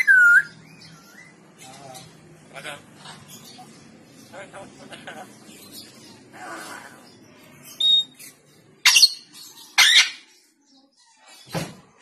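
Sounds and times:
parrot whistling and squawking: 0.0s - 1.3s, 7.8s - 10.3s.

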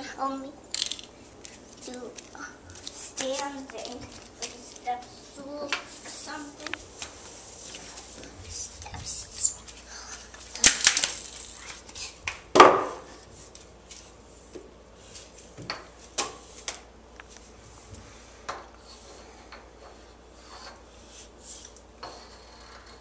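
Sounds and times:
chalk scratching on chalkboard: 18.8s - 23.0s.

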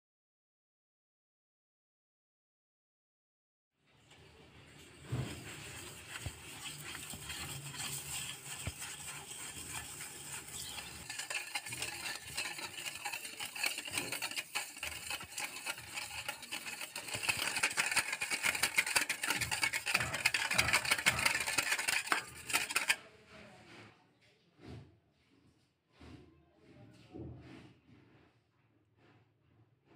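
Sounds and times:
spatula stirring: 4.2s - 23.1s
whisk beating in metal bowl: 4.7s - 23.0s.

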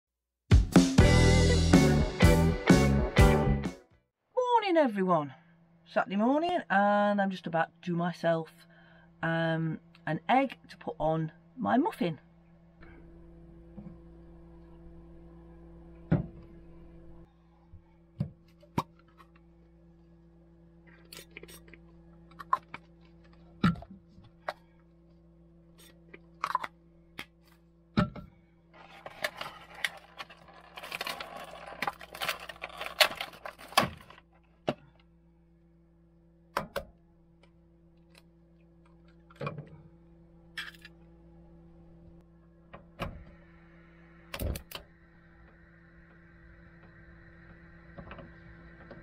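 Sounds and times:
low hum: 8.6s - 49.0s
crinkly rustling: 28.8s - 34.3s.

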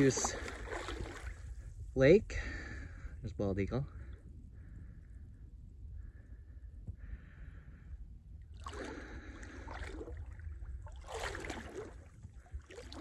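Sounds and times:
wading through water splashing: 0.0s - 1.6s, 8.6s - 13.0s
low steady rumble: 0.0s - 13.0s.

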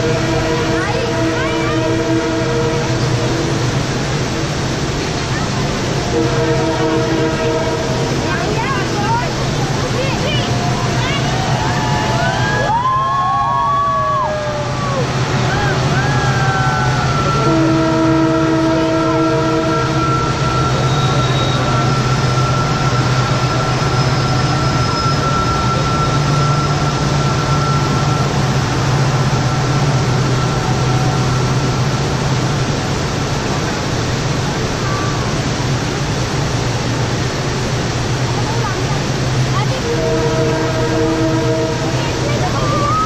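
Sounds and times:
train horn: 0.0s - 3.9s, 6.0s - 8.6s, 15.6s - 32.6s, 39.6s - 43.0s
train crossing a bridge: 0.0s - 43.0s
waterfall rushing: 0.0s - 43.0s
thin high tone: 19.7s - 32.0s.

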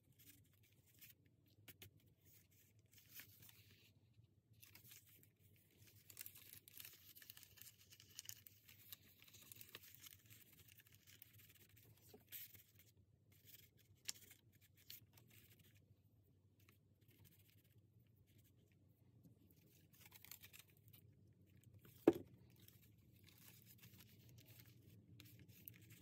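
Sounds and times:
light ticks of paper: 0.1s - 15.9s, 19.4s - 26.0s
paper rustling: 4.6s - 12.8s.

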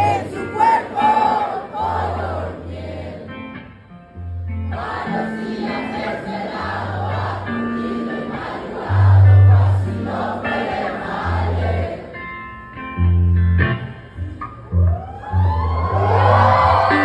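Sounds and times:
crowd singing along: 0.0s - 3.8s, 4.6s - 12.7s
electric guitar: 3.2s - 17.0s
deep bass notes: 8.8s - 12.0s.

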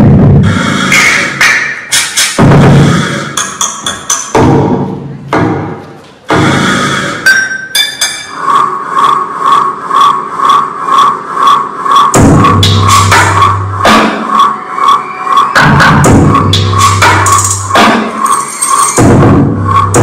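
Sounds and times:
steady ticking beat: 0.0s - 18.3s, 18.9s - 20.0s
sweeping high effects: 6.3s - 20.0s
heavy booming hits: 12.2s - 14.2s.

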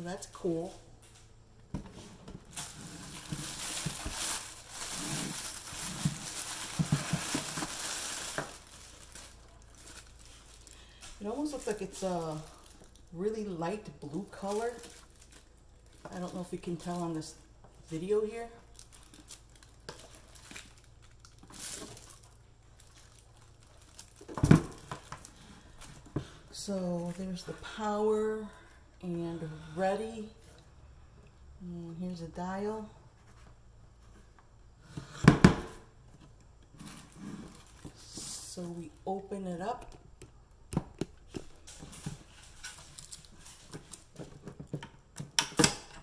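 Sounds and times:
plastic bag crinkling: 2.4s - 17.4s, 18.3s - 26.1s, 36.8s - 39.0s, 41.3s - 44.3s
dull knocks of appliance and box: 35.2s - 35.8s.

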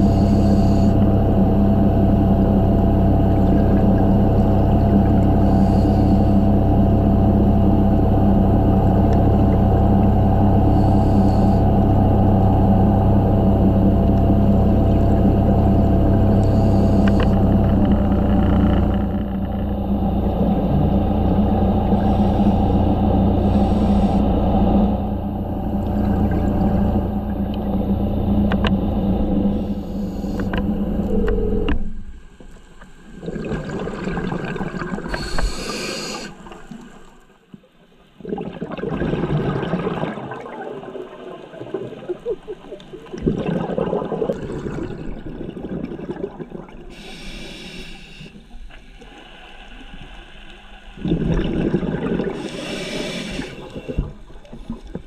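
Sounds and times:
steady hum: 0.0s - 37.5s, 42.2s - 55.0s
exhaled bubbles rushing: 6.9s - 32.3s, 33.0s - 35.8s, 38.2s - 47.0s, 50.9s - 55.0s
regulator inhalation hiss: 22.0s - 24.2s, 35.1s - 36.4s, 46.9s - 48.6s, 52.4s - 54.0s.

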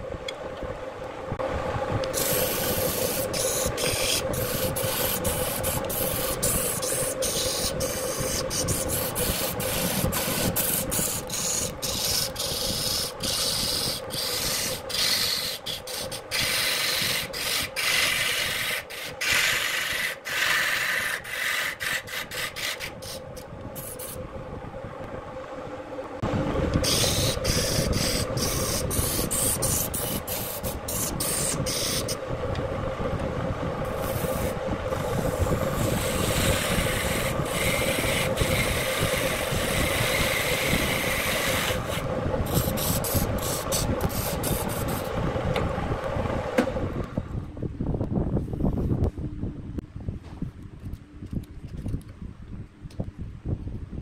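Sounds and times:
wood lathe motor hum: 1.4s - 47.2s
turning tool scraping wood: 2.2s - 24.2s, 26.8s - 32.2s, 33.9s - 45.1s.

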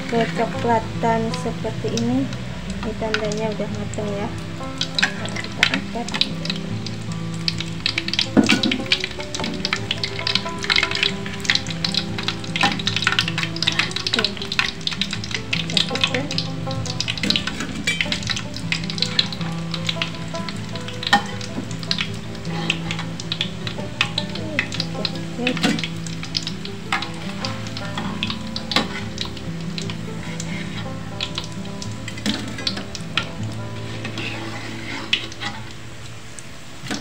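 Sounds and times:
oil sizzling while deep-frying: 0.0s - 37.0s
metal spatula knocking wok: 2.8s - 35.6s.

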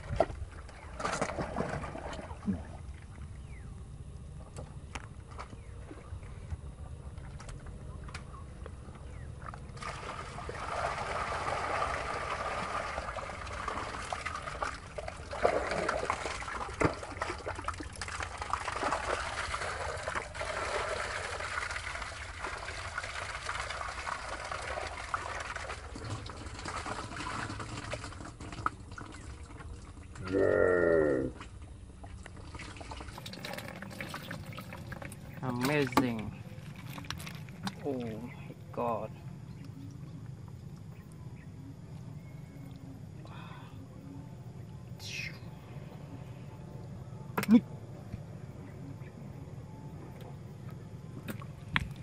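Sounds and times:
muddy water pouring from jug: 9.8s - 30.3s, 32.0s - 38.5s.

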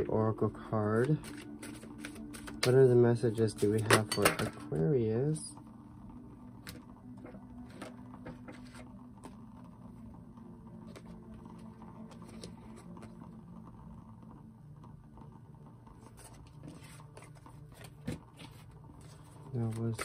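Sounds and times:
cards being shuffled: 0.9s - 2.9s, 7.6s - 9.4s, 10.9s - 13.3s, 16.0s - 20.0s.

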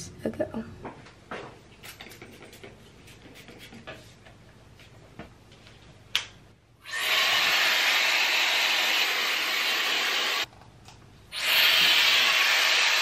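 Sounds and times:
hair dryer blowing air: 6.9s - 10.5s, 11.4s - 13.0s.

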